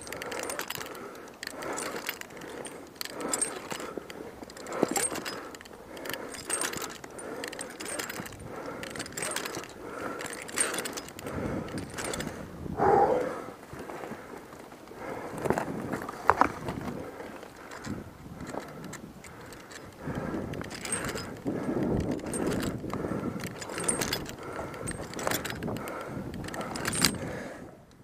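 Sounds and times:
metal climbing gear clicking: 0.0 - 28.0
rope ascender sliding on rope: 0.1 - 11.2.

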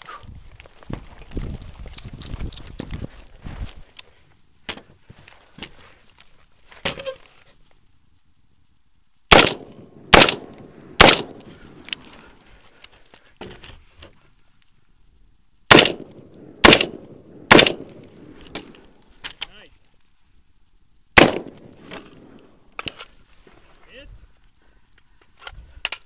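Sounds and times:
rifle shots: 9.3 - 11.5, 15.7 - 18.8, 21.2 - 22.9.

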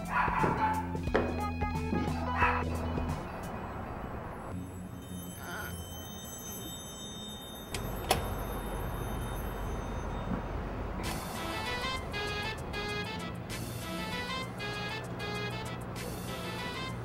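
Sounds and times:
music with clear tune: 0.0 - 3.9, 11.0 - 17.0.

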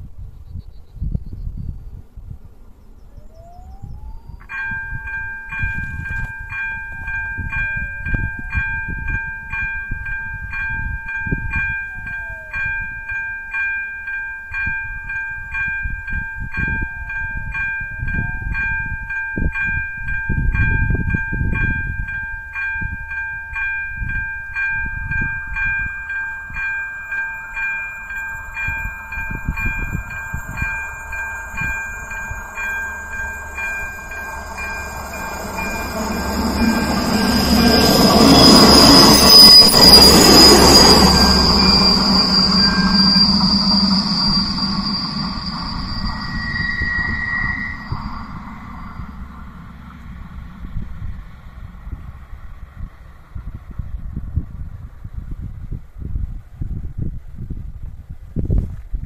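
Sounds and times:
approaching train rushing: 3.2 - 56.0
level crossing warning bell: 3.4 - 52.1.

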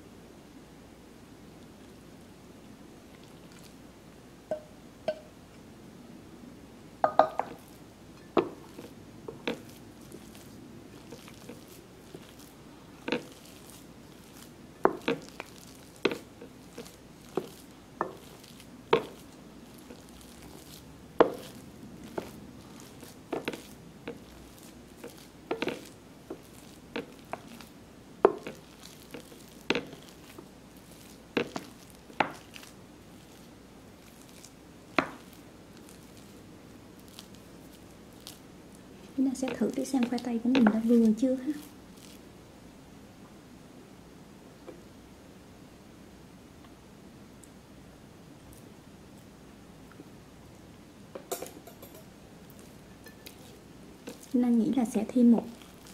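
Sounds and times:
spoon knocking glass bowl: 4.5 - 5.3, 7.0 - 7.6, 51.2 - 52.1, 53.0 - 53.3
metal pot clink: 7.0 - 7.5, 51.2 - 52.1, 52.9 - 53.4
spoon squishing mashed potatoes: 7.2 - 42.4, 51.1 - 55.9.

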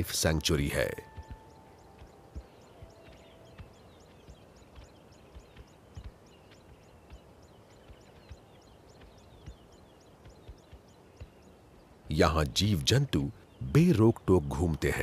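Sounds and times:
lower chirps: 0.0 - 15.0
soft low knocks: 0.4 - 11.4.

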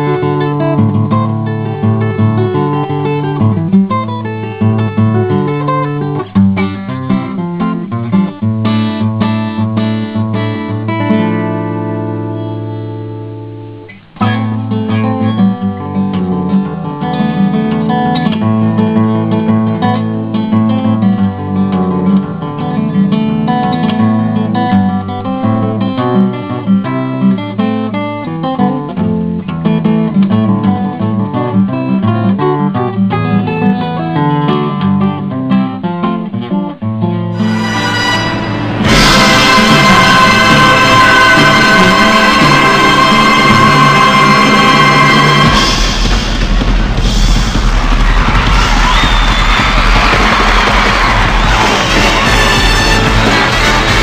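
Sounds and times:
acoustic guitar music: 0.0 - 54.0.

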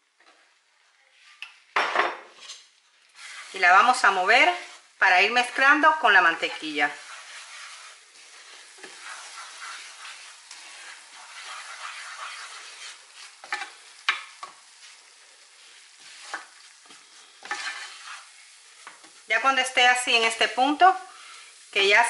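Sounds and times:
light sizzle: 0.0 - 22.0
wooden spoon scraping pan: 2.2 - 19.3.

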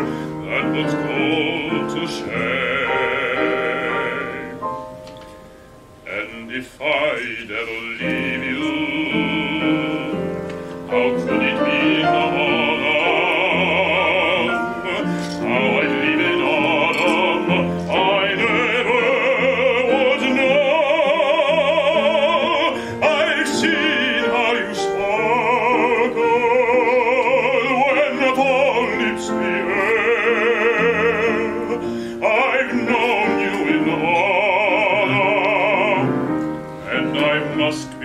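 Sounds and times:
singer breathing: 0.0 - 0.4, 22.8 - 23.0, 31.8 - 32.2
man singing operatic ballad: 0.0 - 4.9, 6.0 - 38.0
grand piano: 0.0 - 38.0.

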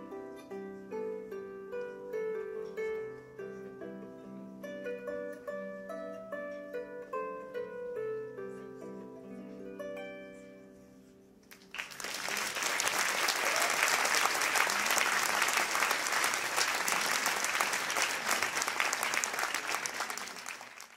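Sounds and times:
audience applause: 11.5 - 20.9.

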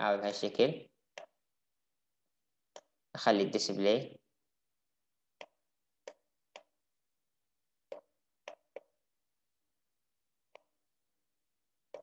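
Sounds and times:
computer mouse clicks: 2.7 - 3.0, 5.4 - 6.8, 7.9 - 9.0.

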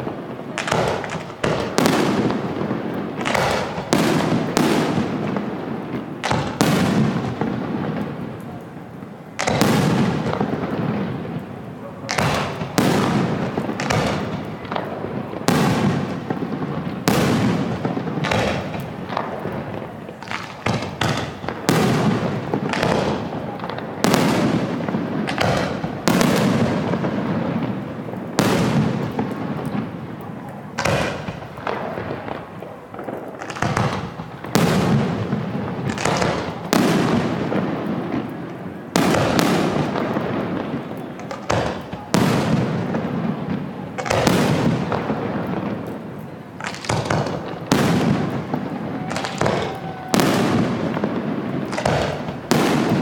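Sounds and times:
crackling firework pops: 0.0 - 53.0
fireworks shells bursting: 15.5 - 53.0.

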